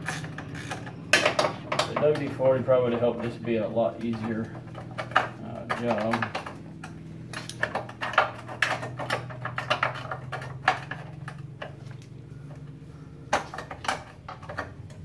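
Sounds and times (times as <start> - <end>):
ratchet wrench clicking: 0.0 - 0.9
steady low hum: 0.0 - 15.0.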